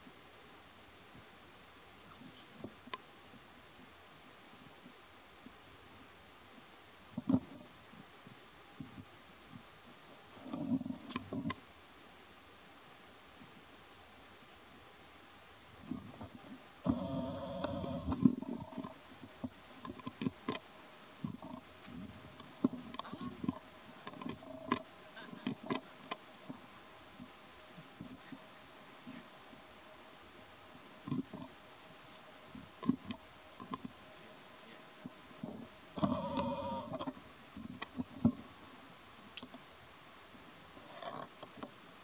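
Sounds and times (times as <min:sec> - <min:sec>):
monkey chewing and lip smacking: 0:22.4 - 0:26.3.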